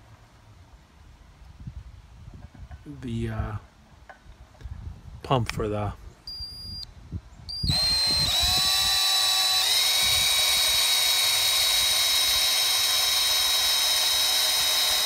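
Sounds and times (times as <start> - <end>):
cordless drill whining: 7.5 - 15.0.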